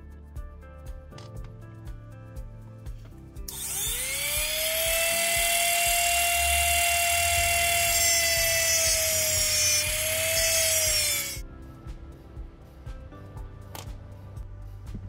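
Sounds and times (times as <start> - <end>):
rotary tool whining: 3.5 - 11.4.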